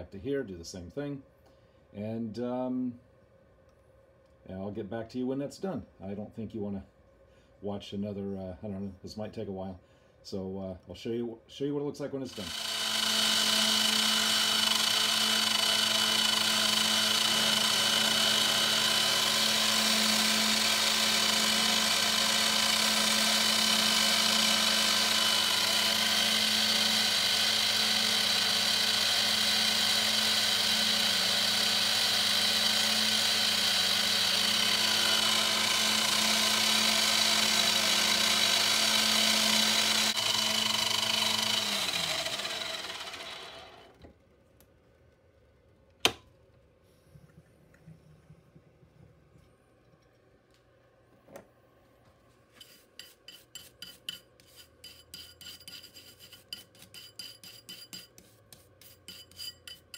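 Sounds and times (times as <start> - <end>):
milling machine whining: 12.3 - 44.0
spindle winding down: 12.3 - 44.0.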